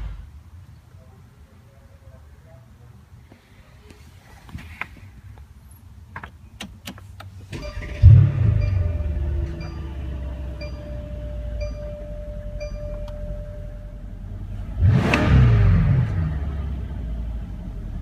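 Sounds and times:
car engine starting and idling: 4.5 - 18.0
short high chime: 7.6 - 14.0.

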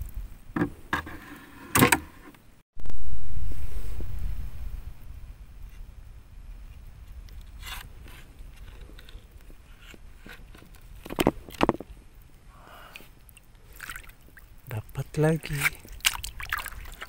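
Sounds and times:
steady low rumble: 2.8 - 10.2.

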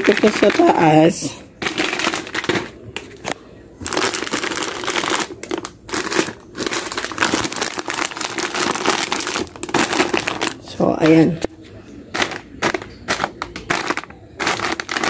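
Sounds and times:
plastic packets crinkling: 0.0 - 15.0.

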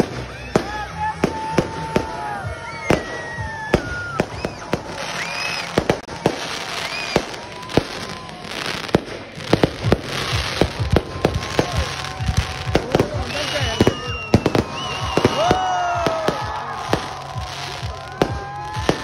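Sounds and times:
fireworks bursting bangs: 0.0 - 19.0
fireworks crackling and hissing: 0.0 - 19.0.

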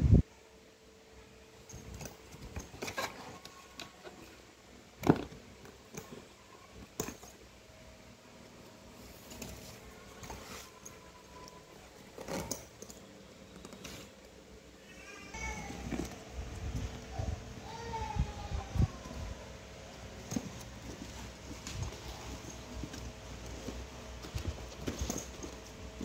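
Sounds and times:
padded bag rustling: 9.0 - 14.2, 20.1 - 26.0.

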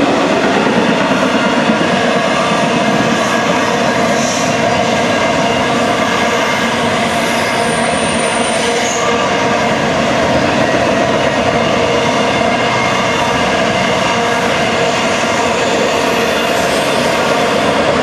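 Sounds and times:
freight train rolling past: 0.0 - 18.0.

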